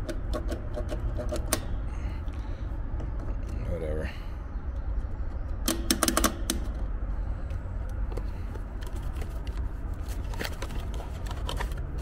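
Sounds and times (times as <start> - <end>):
steady low rumble: 0.0 - 12.0
cardboard box clicks and rustles: 8.6 - 12.0.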